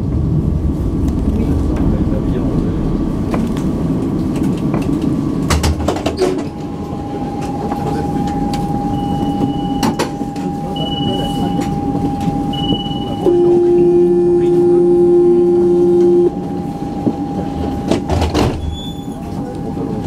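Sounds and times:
tram equipment hum: 0:00.0 - 0:20.0
steady tone: 0:06.5 - 0:20.0
short high beeps: 0:12.5 - 0:16.4.

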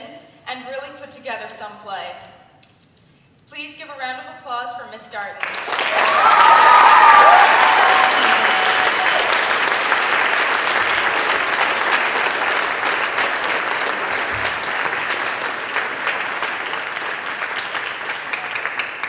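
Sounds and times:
audience applauding: 0:05.4 - 0:19.0.

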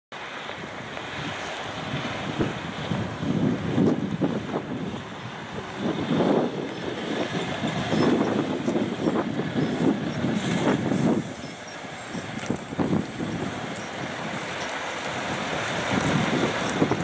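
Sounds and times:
tyres rolling over gravel: 0:00.3 - 0:17.0
truck diesel engine rumbling: 0:01.1 - 0:17.0.

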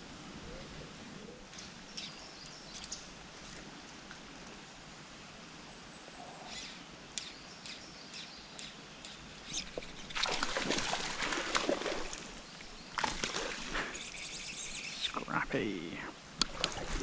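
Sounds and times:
bird chirps: 0:06.4 - 0:10.0, 0:13.8 - 0:15.2
fish splashing in water: 0:09.8 - 0:14.3.

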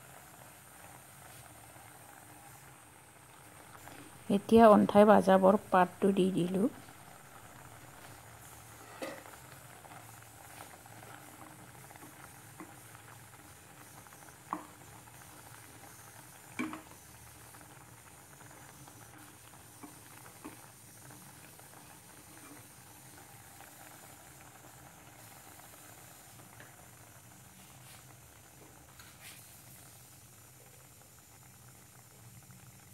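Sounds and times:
curry bubbling in a wok: 0:00.0 - 0:32.9.

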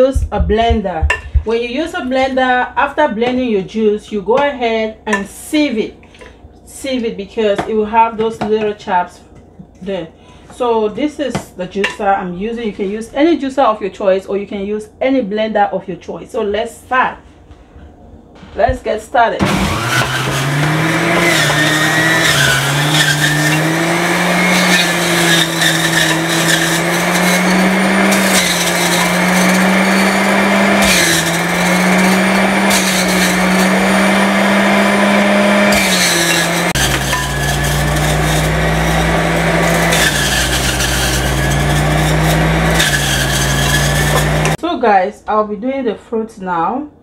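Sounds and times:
deep rumble: 0:00.0 - 0:01.7
juicer motor humming: 0:19.4 - 0:44.6.

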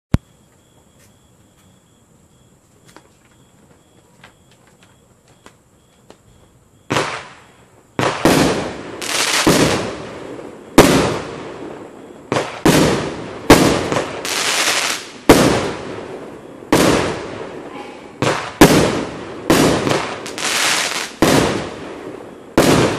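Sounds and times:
firework cake bangs: 0:12.3 - 0:14.4, 0:18.2 - 0:21.9, 0:22.5 - 0:22.9.

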